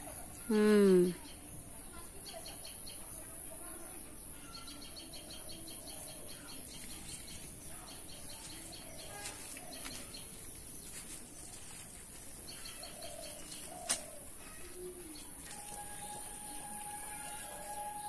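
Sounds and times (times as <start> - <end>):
birds chirping: 4.2 - 18.0.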